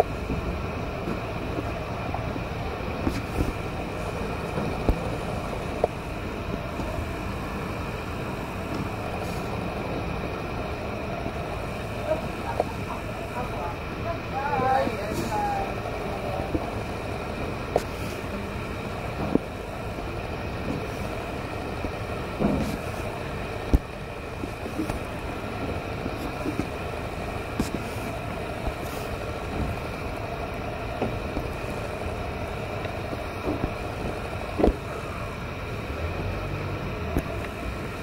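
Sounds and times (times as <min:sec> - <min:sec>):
road traffic hum: 0:00.0 - 0:38.0.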